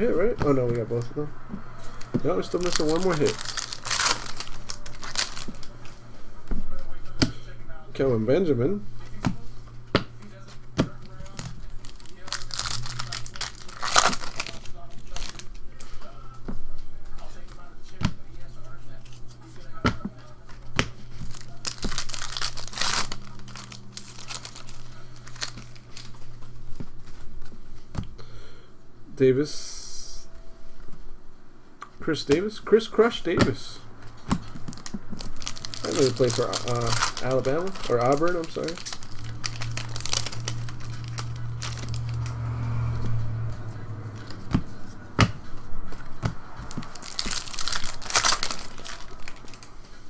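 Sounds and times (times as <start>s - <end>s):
foil wrapper crinkling and tearing: 2.3s - 6.0s, 11.1s - 15.9s, 21.1s - 26.4s, 34.5s - 42.3s, 46.6s - 50.0s
low hum: 38.7s - 50.0s.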